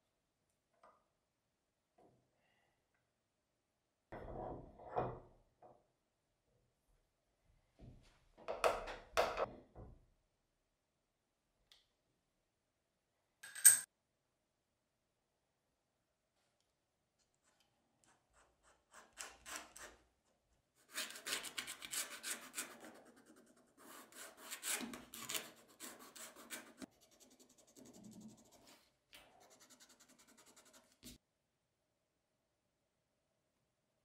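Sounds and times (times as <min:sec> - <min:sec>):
tool scratching leather: 0:20.8 - 0:28.8.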